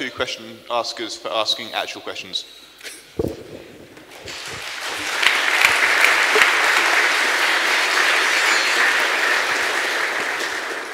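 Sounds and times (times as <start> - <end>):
audience applauding: 4.0 - 10.9.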